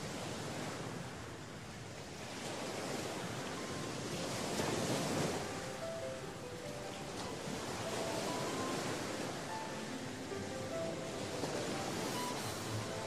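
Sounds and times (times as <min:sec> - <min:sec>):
sea waves washing onto shore: 0:00.0 - 0:13.0.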